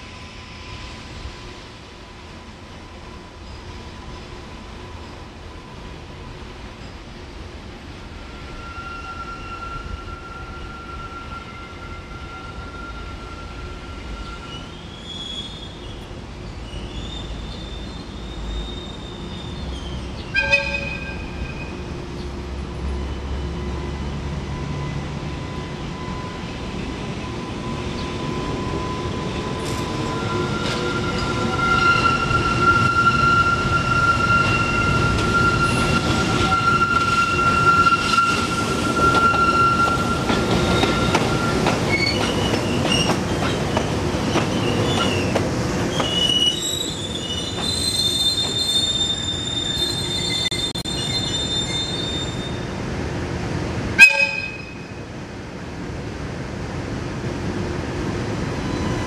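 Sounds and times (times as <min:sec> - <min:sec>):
train wheel flanges squealing: 0:08.2 - 0:21.8, 0:22.9 - 0:52.7, 0:58.6 - 0:59.0
locomotive rumbling: 0:12.4 - 0:59.0.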